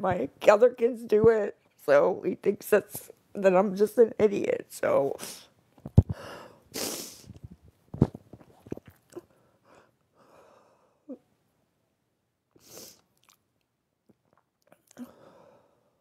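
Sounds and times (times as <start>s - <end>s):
sharp sniff: 6.1s - 7.4s, 12.6s - 13.0s
small mouth clicks: 13.1s - 15.0s.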